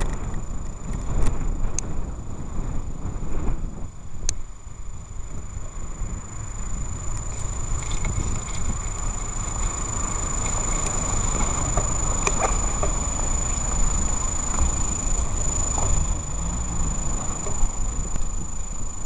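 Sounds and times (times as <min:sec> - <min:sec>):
traffic rumble: 0:00.0 - 0:19.0.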